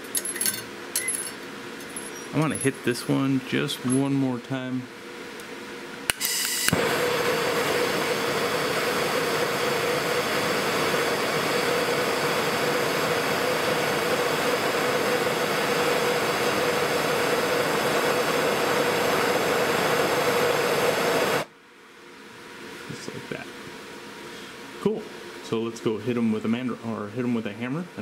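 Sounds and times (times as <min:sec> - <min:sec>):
torch ignition click: 0:05.4 - 0:08.1
torch flame hissing: 0:06.3 - 0:21.5.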